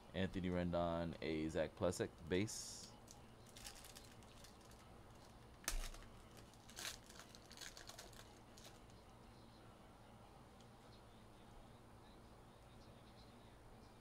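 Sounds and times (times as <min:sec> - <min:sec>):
plastic wrapper crinkling: 0:03.4 - 0:09.0.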